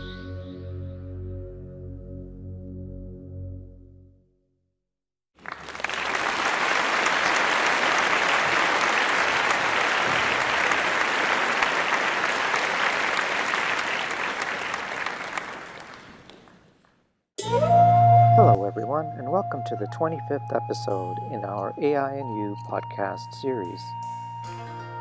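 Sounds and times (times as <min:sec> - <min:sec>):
audience applause: 0:05.4 - 0:16.8.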